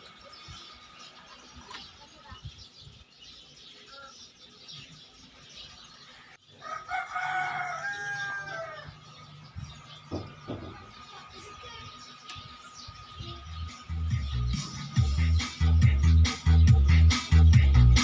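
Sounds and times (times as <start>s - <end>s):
rooster crowing: 6.6s - 9.1s.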